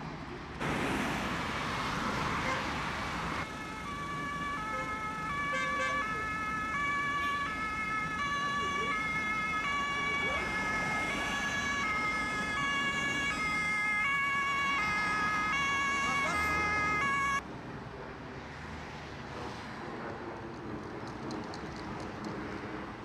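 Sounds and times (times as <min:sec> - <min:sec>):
traffic hum: 0:00.0 - 0:23.0
two-tone emergency siren: 0:03.3 - 0:17.4.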